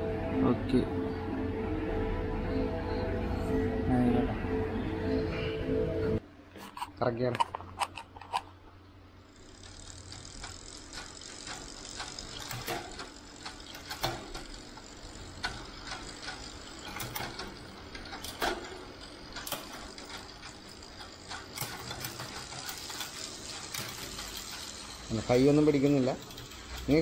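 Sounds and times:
bicycle drivetrain whirring and ticking: 0:09.2 - 0:27.0.

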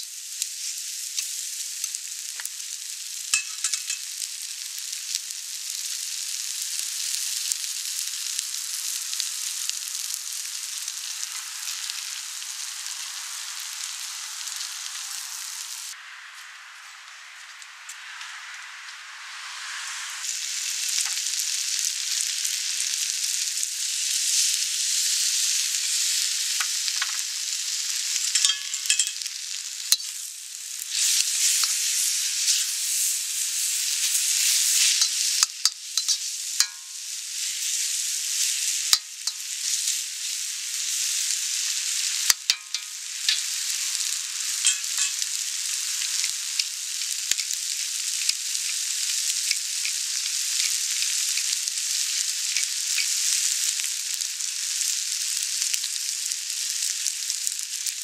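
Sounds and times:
food sizzling in a wok: 0:00.0 - 0:58.0
metal spatula scraping wok: 0:03.3 - 0:04.1, 0:28.1 - 0:29.3, 0:29.9 - 0:40.0, 0:42.0 - 0:45.4.

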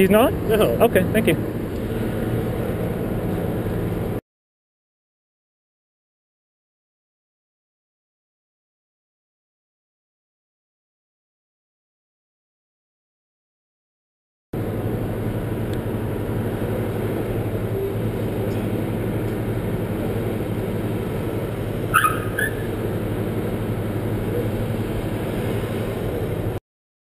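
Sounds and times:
car engines idling: 0:14.6 - 0:26.6.

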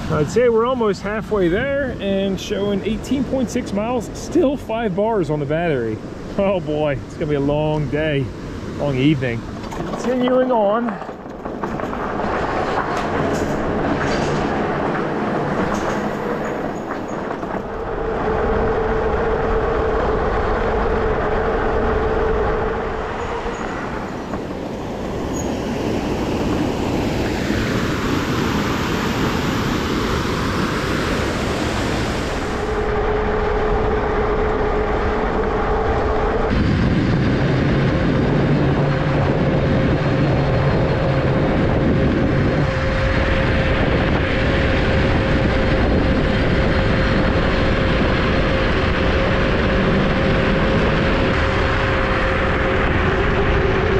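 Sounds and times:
tyre and wind noise: 0:00.0 - 0:53.9
electric bike motor whine: 0:12.1 - 0:53.9.

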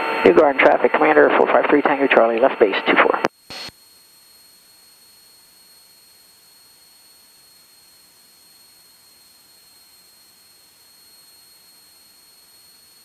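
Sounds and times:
high-pitched electronic whine: 0:00.0 - 0:13.0
radio static burst: 0:00.1 - 0:03.7.

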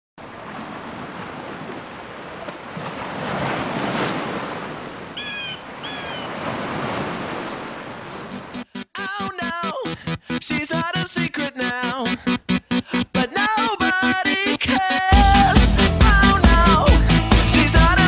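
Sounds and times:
sea surf rushing: 0:00.2 - 0:08.6
wind: 0:00.2 - 0:08.7.

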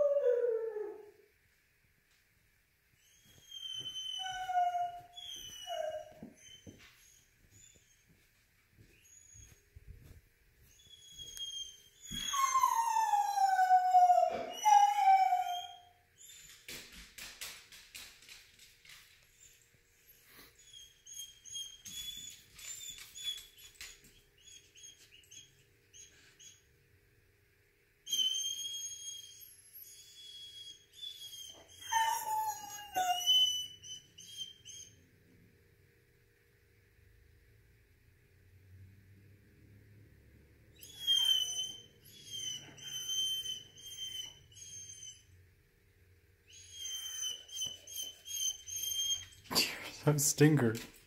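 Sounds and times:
dog whining and crying: 0:00.0 - 0:01.1, 0:03.0 - 0:08.1, 0:10.7 - 0:16.7, 0:20.5 - 0:26.6, 0:28.1 - 0:35.0, 0:40.8 - 0:45.3, 0:46.5 - 0:49.6
dog whimpering: 0:03.0 - 0:07.8, 0:10.8 - 0:16.4, 0:28.1 - 0:34.9, 0:40.8 - 0:45.2, 0:46.5 - 0:49.6.

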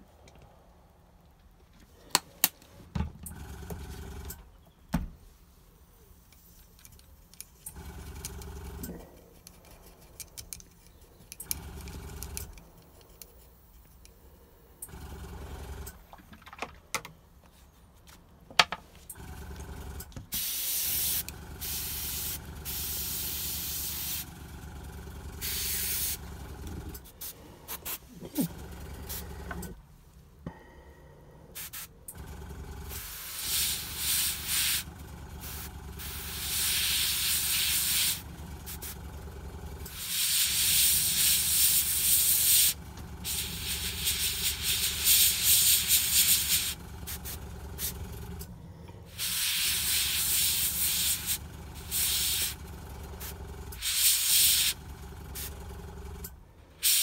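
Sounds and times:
airbrush spraying hiss: 0:20.4 - 0:24.3, 0:25.4 - 0:26.2, 0:31.6 - 0:31.9, 0:32.9 - 0:34.8, 0:35.4 - 0:39.0, 0:39.9 - 0:47.9, 0:49.2 - 0:52.6, 0:53.2 - 0:54.8
low compressor hum: 0:21.3 - 0:31.5.

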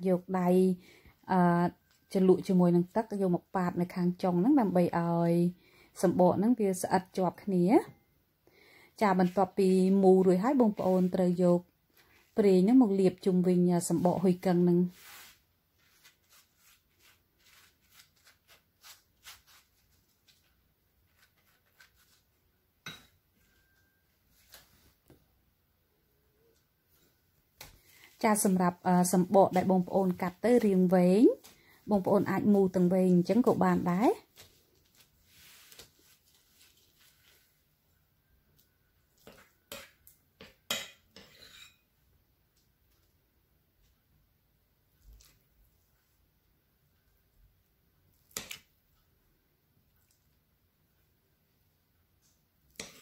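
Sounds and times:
pastry brush swishing: 0:13.9 - 0:22.4, 0:34.2 - 0:37.6.

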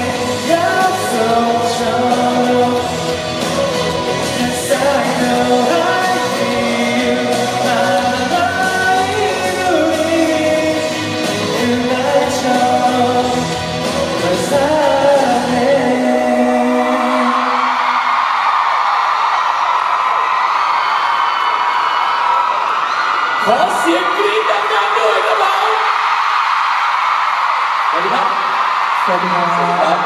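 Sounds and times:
accompanying music: 0:00.0 - 0:17.7
man singing into microphone: 0:00.0 - 0:18.1.

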